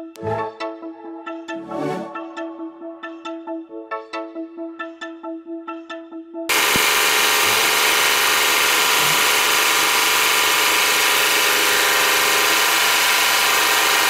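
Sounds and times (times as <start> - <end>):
music: 0.0 - 6.5
electric saw running: 6.5 - 14.0.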